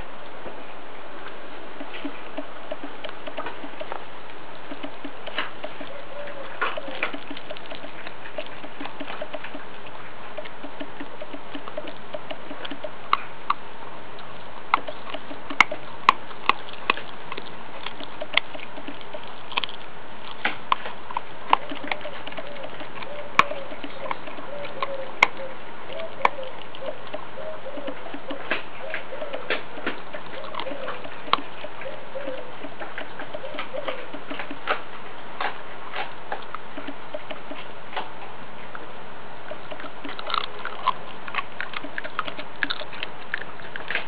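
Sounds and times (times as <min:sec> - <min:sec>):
puppy crunching bones: 0:01.2 - 0:44.0.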